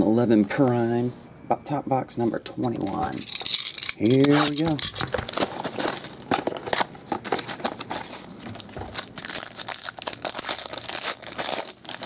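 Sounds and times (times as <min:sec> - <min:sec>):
packaging crinkling and tearing: 0:04.2 - 0:12.0.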